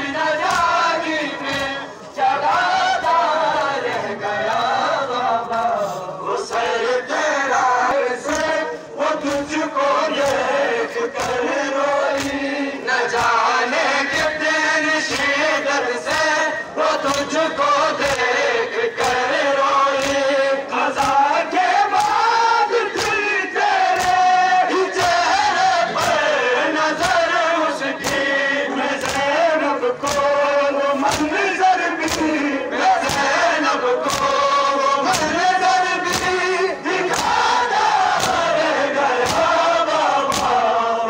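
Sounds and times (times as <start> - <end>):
men chanting a lament: 0.0 - 41.0
hands slapping chests: 0.4 - 1.8, 8.3 - 8.6, 9.2 - 14.4, 15.0 - 18.4, 19.0 - 19.3, 19.9 - 20.4, 21.0 - 22.3, 22.9 - 23.3, 23.9 - 24.3, 25.0 - 25.4, 26.0 - 26.3, 26.9 - 27.4, 28.0 - 28.3, 29.0 - 29.4, 30.0 - 30.4, 31.0 - 31.4, 32.0 - 32.4, 33.0 - 33.4, 34.0 - 34.4, 35.1 - 36.5, 37.1 - 38.6, 39.2 - 39.6, 40.2 - 40.6.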